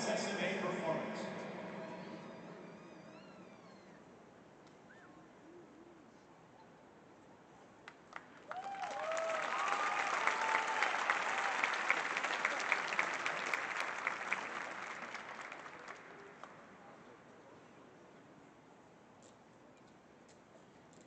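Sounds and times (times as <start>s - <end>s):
crowd applauding and cheering: 8.0s - 16.7s
whoops: 8.4s - 12.6s.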